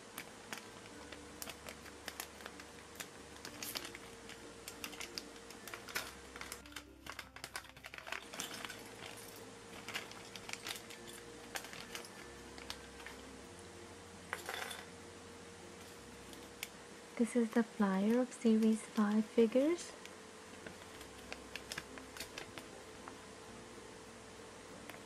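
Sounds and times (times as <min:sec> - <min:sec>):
foil bag crinkling: 0:00.0 - 0:13.3, 0:20.8 - 0:22.8.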